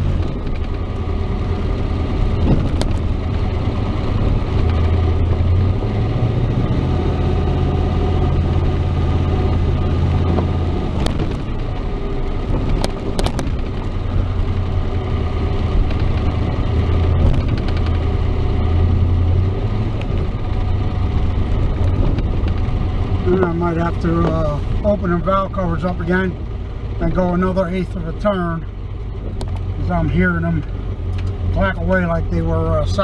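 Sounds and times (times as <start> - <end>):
pickup engine running: 0.0 - 33.0
sharp clicks: 17.3 - 18.0.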